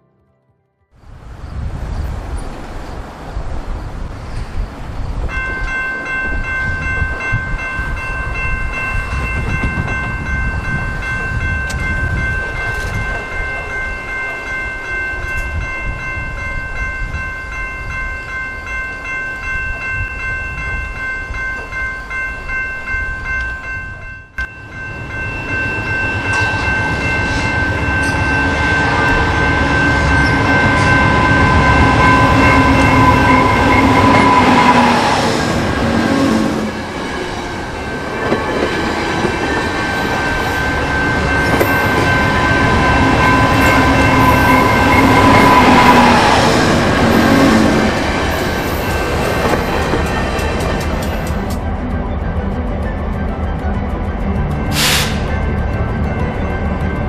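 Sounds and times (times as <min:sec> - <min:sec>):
level crossing bell ringing: 0:05.3 - 0:35.0, 0:37.0 - 0:49.3
diesel locomotive rumble: 0:24.3 - 0:57.0.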